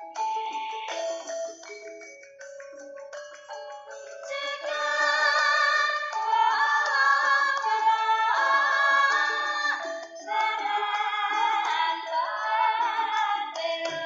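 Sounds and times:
song with sliding sung notes: 3.9s - 14.0s.

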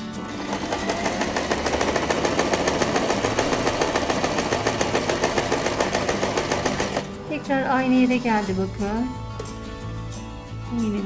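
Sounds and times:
sewing machine stitching: 0.0s - 7.1s.

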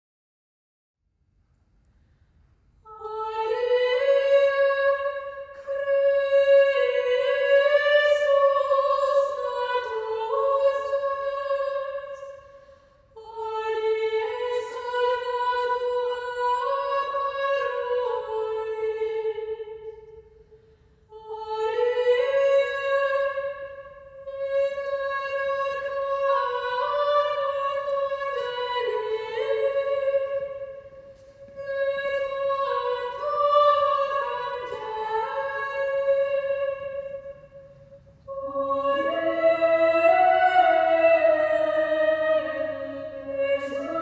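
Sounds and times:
women's choir singing in unison: 3.0s - 12.4s, 13.2s - 19.6s, 24.3s - 30.7s, 31.5s - 37.3s, 38.3s - 44.0s.

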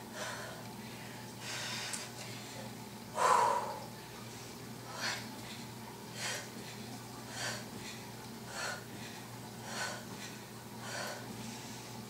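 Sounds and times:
woman breathing hard: 0.0s - 0.7s, 3.2s - 3.9s, 4.9s - 5.3s, 7.3s - 12.0s.

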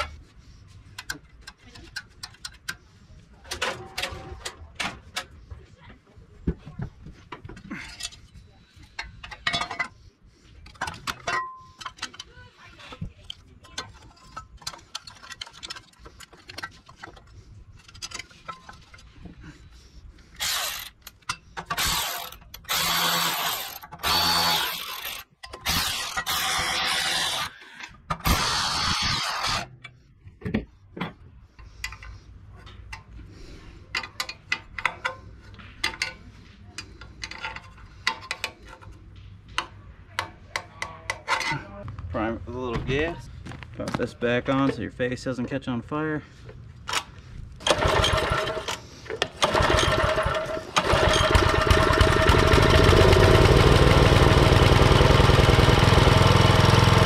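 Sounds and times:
hand tools and metal parts clicking: 0.0s - 5.4s, 7.3s - 42.0s, 46.4s - 55.2s
power driver whirring: 21.8s - 27.6s, 28.2s - 29.7s, 47.6s - 57.0s.

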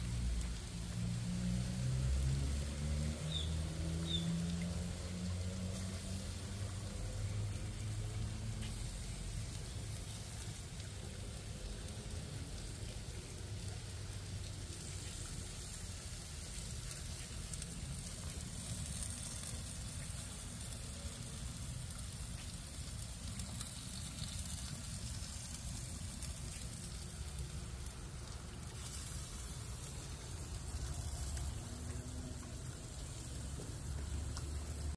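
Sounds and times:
fish sizzling on a grill: 0.0s - 34.9s.

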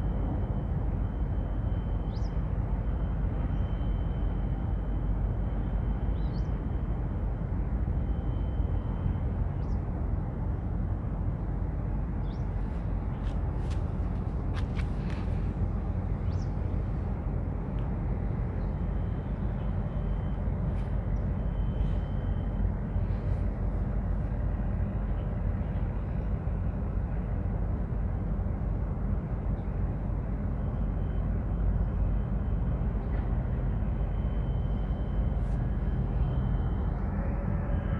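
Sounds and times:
low rumbling harbour ambience: 0.0s - 37.9s
faint high-pitched tone: 33.9s - 37.9s.

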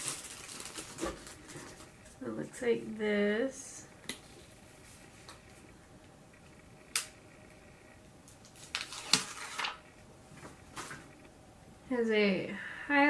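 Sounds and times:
packaging rustling: 0.0s - 2.1s, 8.3s - 11.2s.

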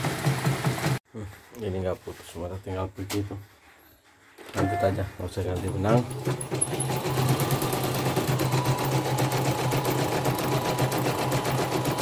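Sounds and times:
embroidery machine stitching: 0.0s - 1.0s, 5.4s - 12.0s.

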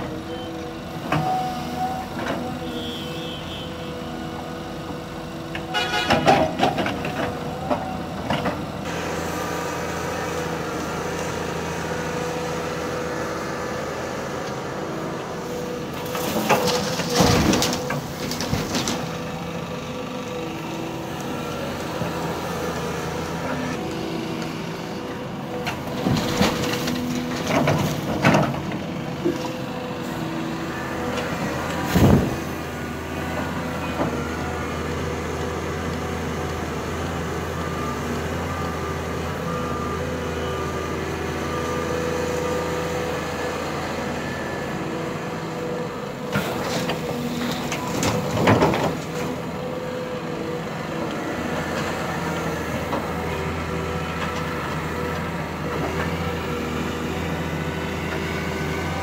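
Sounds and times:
excavator engine running: 0.0s - 59.0s.

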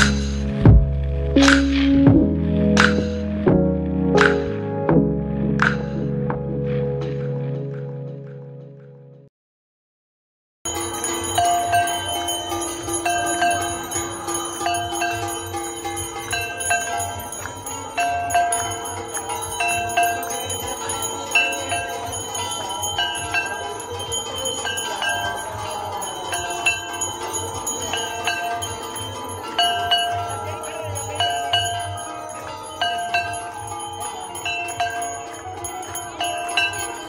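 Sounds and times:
devotional music: 0.0s - 9.1s, 10.7s - 37.0s
temple bells ringing: 10.7s - 37.0s.

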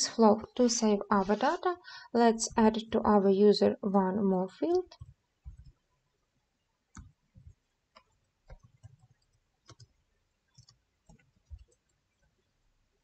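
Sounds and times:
keyboard typing clicks: 8.0s - 9.9s, 10.6s - 11.9s.

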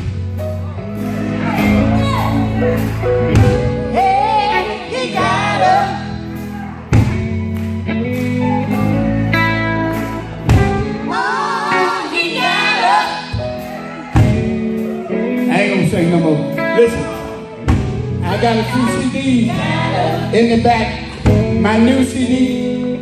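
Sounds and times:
band with guitar and drum kit: 0.0s - 23.0s
gospel singers: 1.0s - 7.1s, 11.0s - 14.4s, 18.2s - 23.0s.

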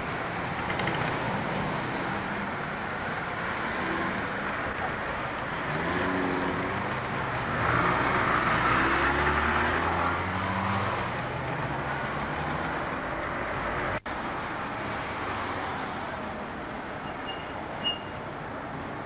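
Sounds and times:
steady traffic noise: 0.0s - 19.0s
short high squeak: 17.0s - 18.2s.

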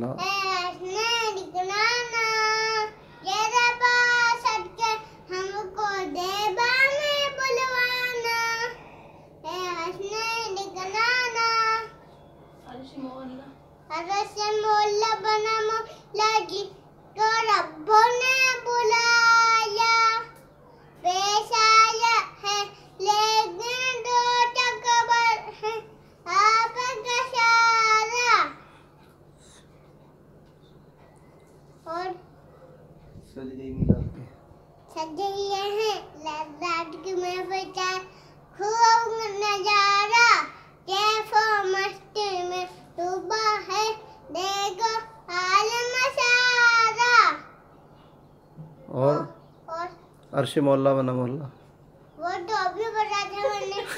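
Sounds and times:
boy singing unaccompanied: 0.1s - 8.8s, 21.0s - 28.5s, 35.0s - 47.4s.

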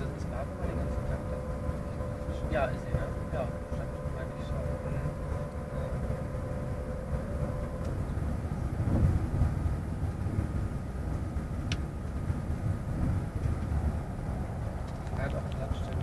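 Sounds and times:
train wheels rumbling: 0.0s - 16.0s.

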